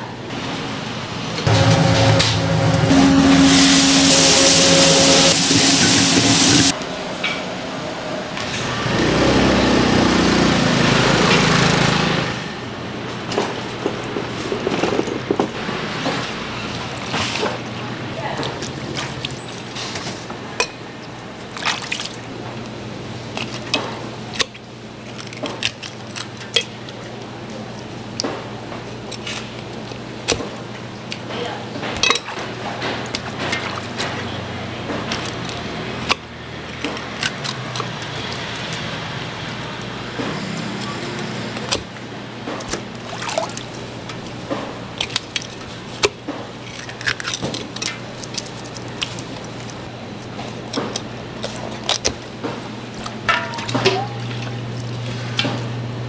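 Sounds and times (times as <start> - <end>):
low steady hum: 1.5 - 6.8
wet splashy sounds: 15.8 - 20.3, 21.0 - 31.3, 32.0 - 55.7.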